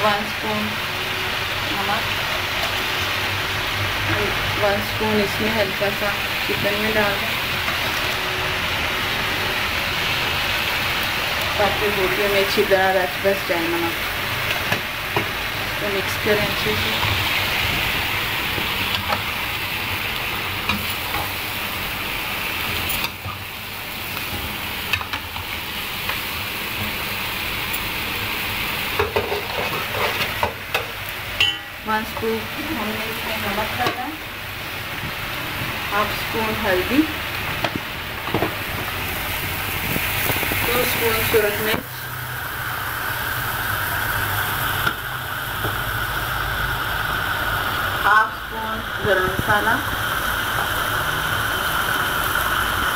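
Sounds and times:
chicken sizzling in oil: 0:00.0 - 0:52.9
utensil scraping against pan: 0:29.0 - 0:30.9.

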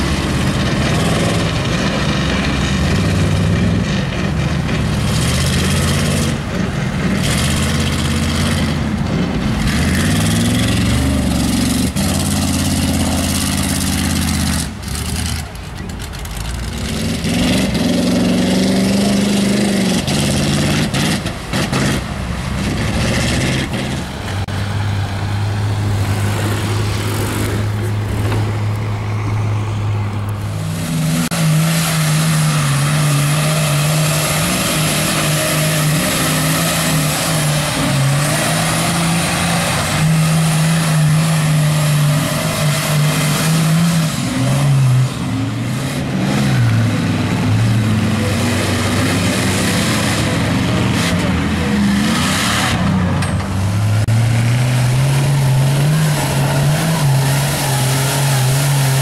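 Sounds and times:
truck engines revving: 0:00.0 - 0:59.0.

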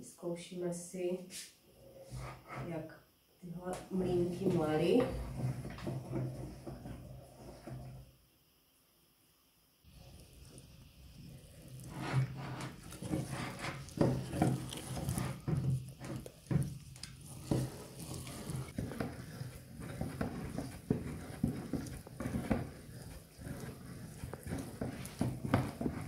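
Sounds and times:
hand-cranked meat grinder mincing: 0:11.6 - 0:26.0.

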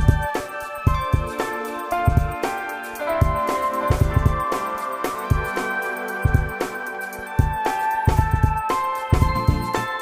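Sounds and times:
sustained melodic tones: 0:00.6 - 0:10.0
repeated drum hits: 0:03.2 - 0:06.5.

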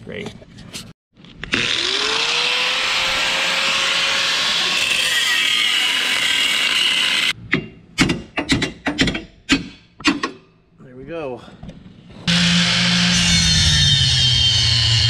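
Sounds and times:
angle grinder cutting steel: 0:01.4 - 0:07.4, 0:12.3 - 0:15.0.

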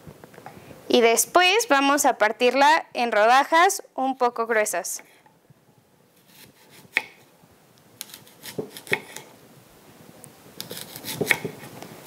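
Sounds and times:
knife slicing apple: 0:06.2 - 0:07.2, 0:08.0 - 0:09.3, 0:10.6 - 0:11.8.

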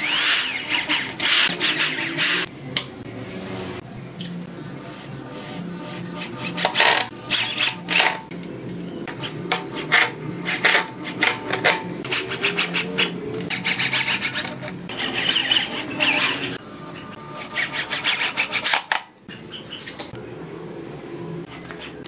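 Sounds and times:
electric drill running in bursts: 0:00.0 - 0:02.4
drill bit rasping scrapes: 0:12.1 - 0:16.6.

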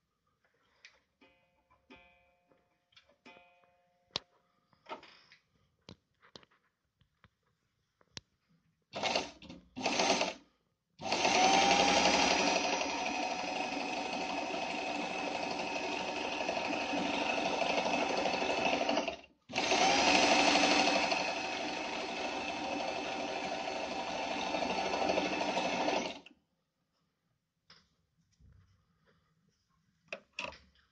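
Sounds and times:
sewing machine stitching: 0:09.0 - 0:10.4, 0:11.0 - 0:26.3.

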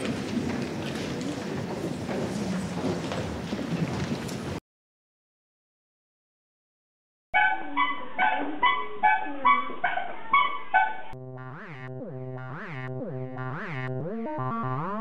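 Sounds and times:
synthesizer background music: 0:07.7 - 0:15.0.

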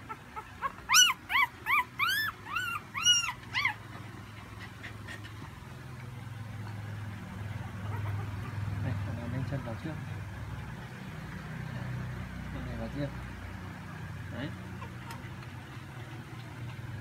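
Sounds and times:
puppy squealing: 0:00.0 - 0:04.0, 0:07.6 - 0:08.8, 0:14.7 - 0:15.2.

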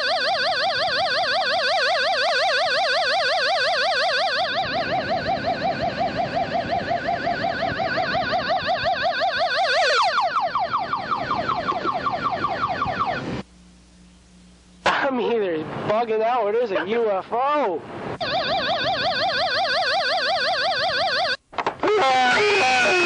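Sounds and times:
electronic warbling ufo tone: 0:00.0 - 0:13.3, 0:22.0 - 0:23.0.

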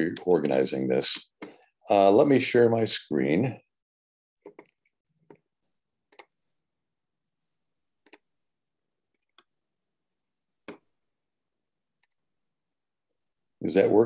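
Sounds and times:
computer mouse clicks: 0:04.5 - 0:05.4, 0:06.1 - 0:06.4, 0:08.0 - 0:08.3, 0:09.1 - 0:09.5, 0:12.0 - 0:12.2.

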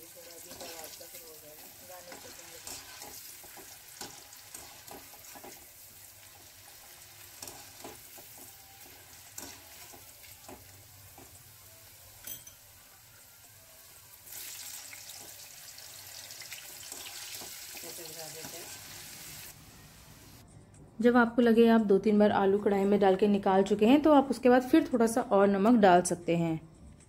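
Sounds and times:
potato sticks deep-frying: 0:00.0 - 0:13.0, 0:13.6 - 0:19.6.

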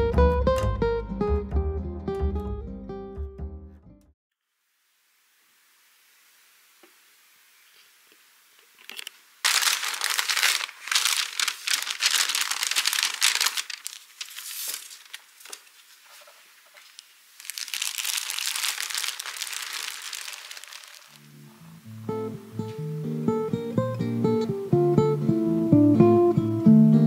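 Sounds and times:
paper and plastic bag crinkling: 0:08.9 - 0:21.3.

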